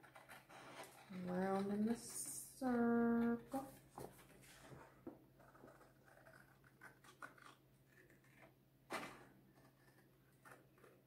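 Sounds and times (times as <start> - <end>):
scissors cutting paper: 0.0 - 3.7, 5.4 - 11.0
paper rustling: 3.6 - 11.0.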